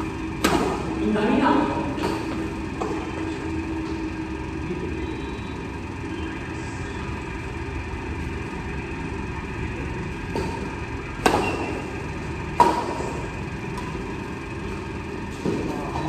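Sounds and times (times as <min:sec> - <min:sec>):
steady background hum: 0:00.0 - 0:16.0
racket hitting shuttlecock: 0:00.4 - 0:00.9, 0:10.3 - 0:12.0, 0:12.6 - 0:14.0.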